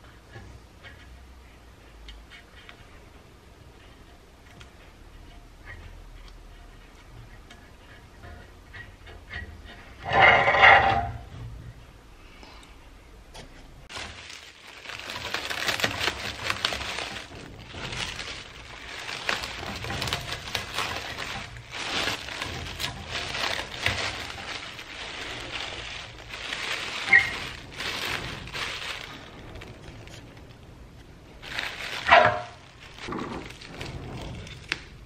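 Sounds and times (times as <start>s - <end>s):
plastic film rustling: 13.8s - 35.0s
short sharp squeak: 27.1s - 27.4s.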